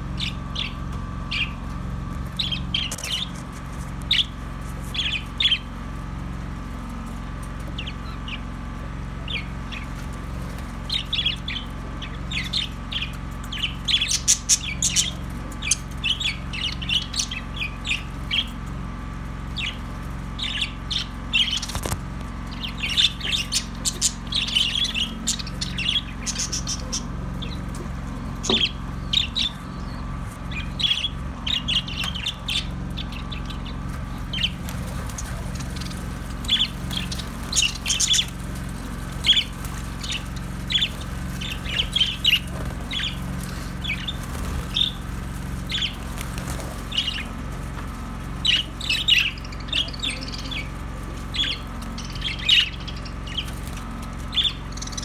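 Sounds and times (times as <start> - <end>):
steady low hum: 0.0 - 55.0
budgerigars chirping: 0.2 - 1.6, 10.9 - 18.5, 20.4 - 21.8, 22.5 - 27.6, 28.4 - 47.4, 48.4 - 55.0.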